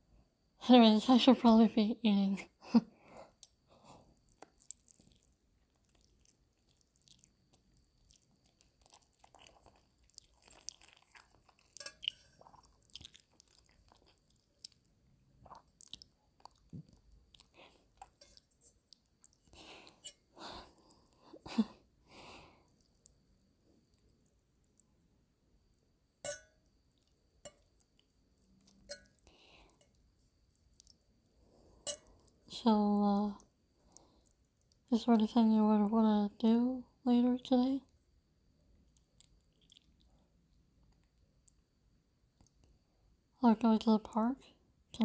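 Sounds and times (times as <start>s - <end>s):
chewing and biting: 4.2s - 20.0s, 38.9s - 40.2s.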